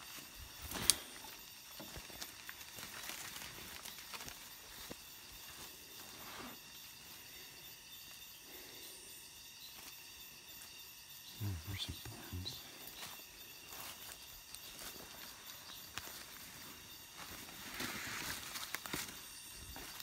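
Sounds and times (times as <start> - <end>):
footsteps on dry leaves: 0.0 - 6.6, 13.0 - 20.0.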